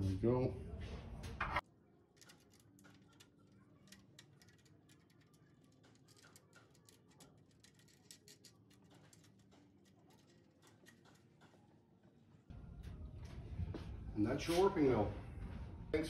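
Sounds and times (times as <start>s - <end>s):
small clicks and taps of handling: 2.2s - 11.6s.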